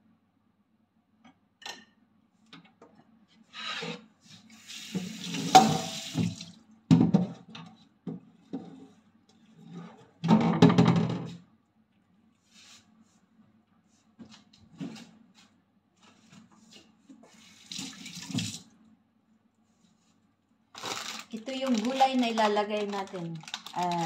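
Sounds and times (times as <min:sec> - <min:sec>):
tap running into metal sink: 0:04.9 - 0:06.5.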